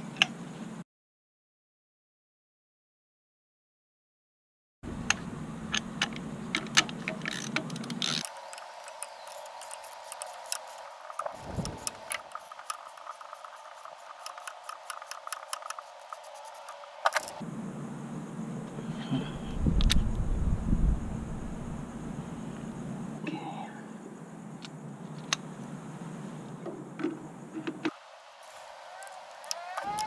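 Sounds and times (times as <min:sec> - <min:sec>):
ratchet clicking: 0:05.7 - 0:17.3.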